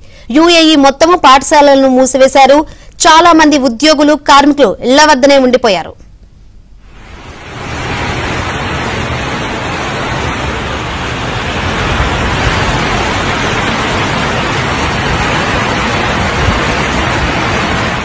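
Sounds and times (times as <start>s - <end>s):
heavy rain and floodwater rushing: 6.8s - 18.0s.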